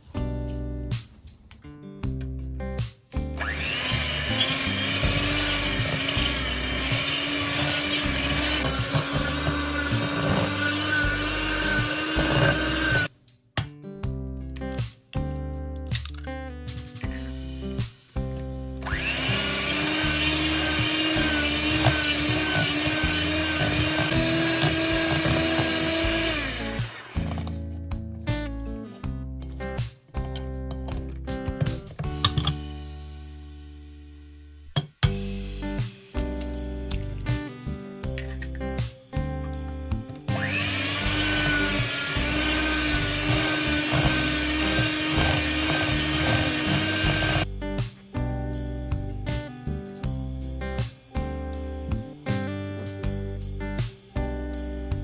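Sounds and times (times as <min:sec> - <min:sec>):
electric hand mixer running: 0:03.4 - 0:13.1, 0:18.8 - 0:27.4, 0:40.3 - 0:47.5.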